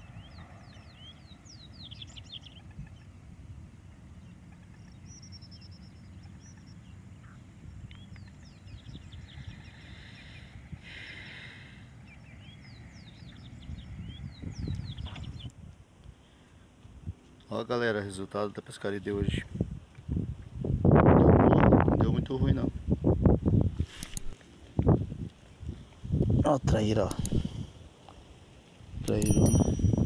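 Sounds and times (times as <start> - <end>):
wind rumble on microphone: 0.0 - 11.1, 11.9 - 16.1, 16.8 - 17.3, 19.1 - 27.9, 28.8 - 30.0
small birds chirping: 0.0 - 20.3
brief hiss: 23.8 - 24.4.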